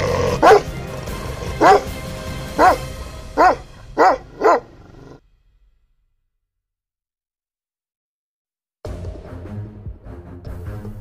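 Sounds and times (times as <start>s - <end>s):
dog barking: 0.0s - 0.8s, 1.4s - 2.0s, 2.6s - 5.2s.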